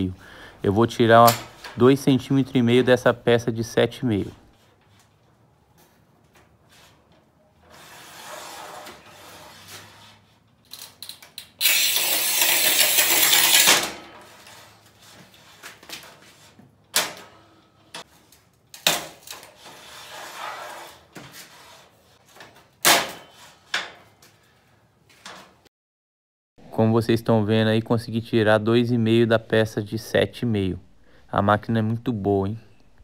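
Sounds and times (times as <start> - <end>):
tile cutter scraping tile: 7.6 - 10.4, 11.6 - 15.7, 18.9 - 22.4, 23.1 - 23.8.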